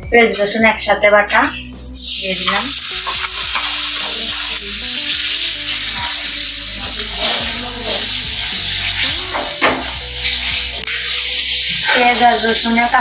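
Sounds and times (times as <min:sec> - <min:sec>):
paste sizzling in hot oil: 0:02.0 - 0:13.0
spatula scraping metal pan: 0:05.6 - 0:12.8.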